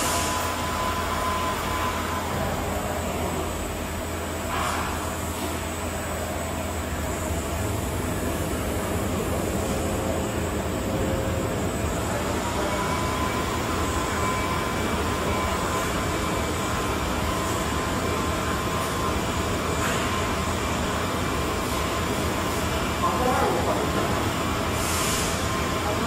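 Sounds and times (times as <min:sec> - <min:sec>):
faint high whine: 0:05.9 - 0:24.2.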